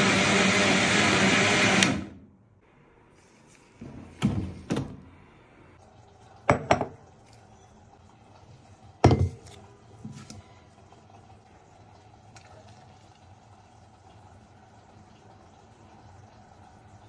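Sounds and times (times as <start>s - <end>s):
blender running: 0.0s - 2.2s
glass mug clunking on counter: 6.5s - 7.0s, 9.0s - 9.5s.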